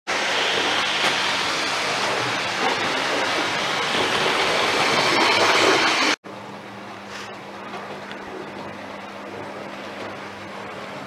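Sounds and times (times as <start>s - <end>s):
model train running on track: 0.1s - 6.2s.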